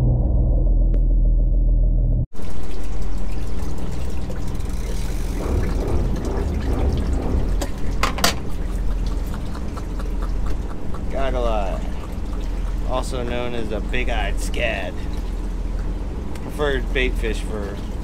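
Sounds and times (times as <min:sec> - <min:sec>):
steady low hum: 0:00.0 - 0:18.0
water pouring and splashing: 0:02.3 - 0:18.0
sharp knocks: 0:05.4 - 0:08.5.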